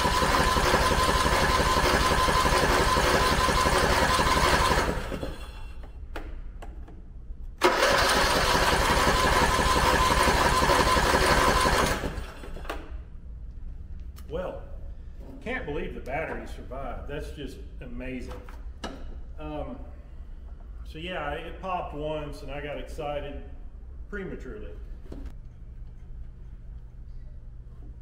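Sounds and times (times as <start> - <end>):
electric starter whining: 0.0 - 5.7, 7.6 - 12.9
engine cranking without catching: 0.0 - 5.8, 7.6 - 12.7.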